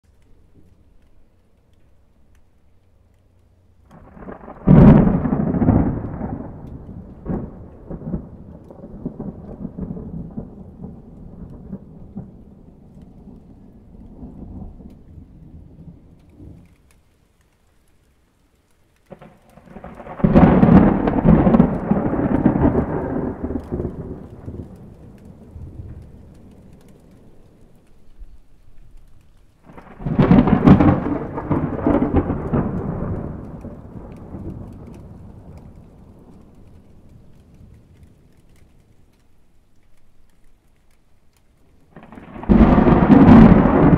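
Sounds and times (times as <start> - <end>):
rain falling on a puddle: 0.0 - 43.9
thunder clap and rumble: 3.9 - 16.9, 19.1 - 28.1, 29.6 - 39.2, 41.9 - 43.9.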